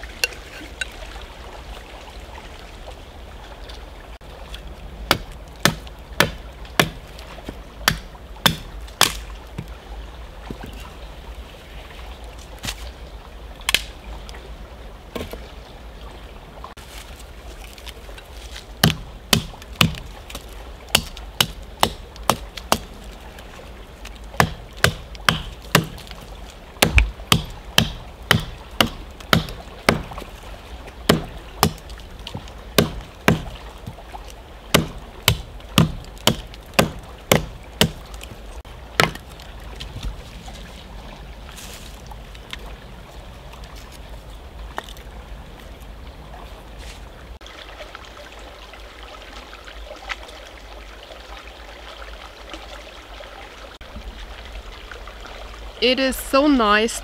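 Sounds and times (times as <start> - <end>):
axe chopping wood: 5.1 - 7.1, 7.8 - 9.7, 18.8 - 22.9, 24.4 - 26.1, 26.8 - 30.2, 31.1 - 34.0, 34.7 - 38.1, 39.0 - 39.4.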